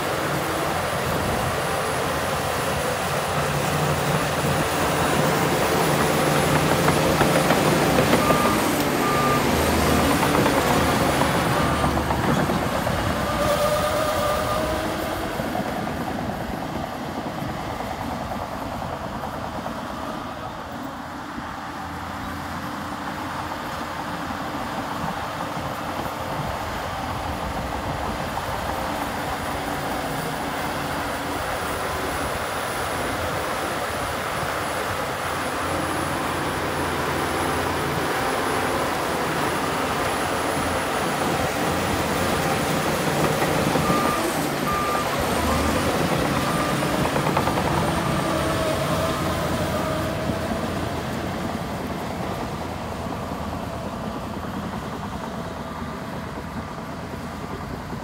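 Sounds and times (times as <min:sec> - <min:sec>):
heavy diesel machinery running: 0:00.0 - 0:58.0
reversing alarm beeps: 0:05.9 - 0:14.8, 0:41.7 - 0:50.3.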